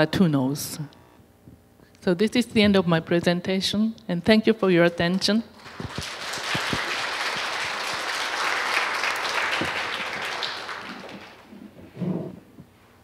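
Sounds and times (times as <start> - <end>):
audience applauding: 5.6 - 11.6.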